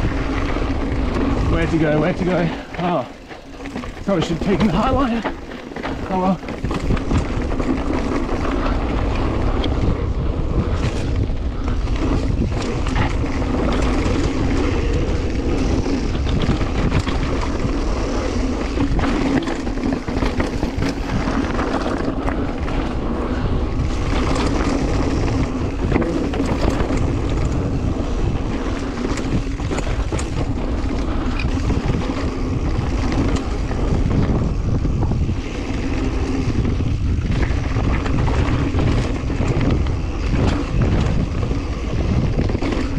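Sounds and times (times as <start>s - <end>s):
bike tyres rumbling on rocks: 0.0s - 42.9s
wind on microphone: 0.0s - 42.9s
bike clattering over rocks: 1.4s - 8.7s.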